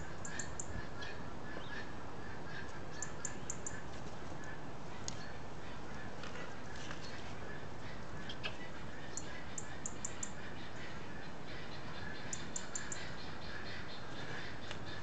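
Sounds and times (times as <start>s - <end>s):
birds chirping: 0.0s - 15.0s
outdoor background noise: 0.0s - 15.0s.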